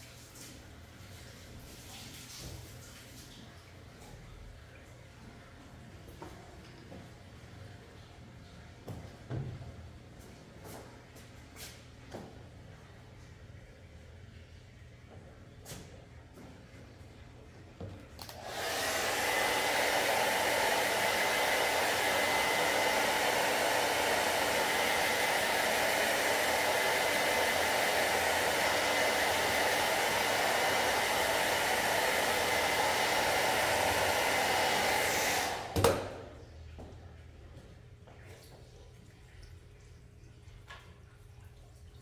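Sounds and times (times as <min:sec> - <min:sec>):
hair dryer blowing: 0:18.2 - 0:36.4.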